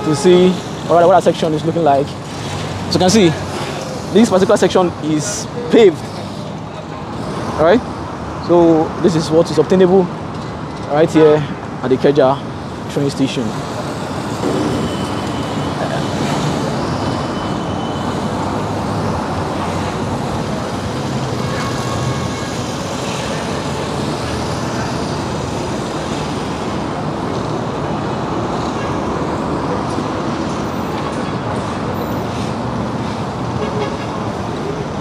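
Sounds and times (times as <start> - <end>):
passing cars and buses: 0.0 - 35.0.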